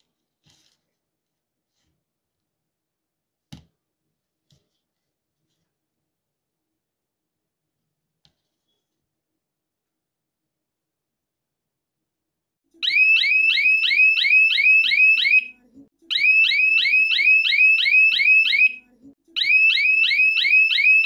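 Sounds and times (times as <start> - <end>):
electronic siren sweeping: 12.8 - 15.5, 16.1 - 18.8, 19.4 - 21.0.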